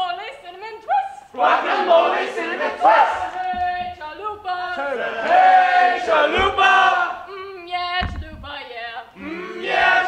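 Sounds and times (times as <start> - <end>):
group chanting call and response: 0.9 - 7.3, 9.1 - 10.0
thump: 3.0 - 4.2, 6.0 - 7.0, 8.0 - 8.6.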